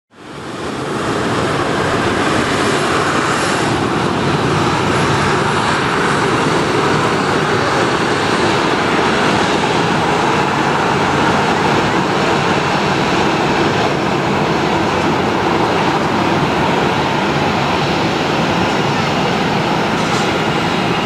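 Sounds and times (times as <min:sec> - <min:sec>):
jet engines rushing and rumbling: 0:00.1 - 0:21.0.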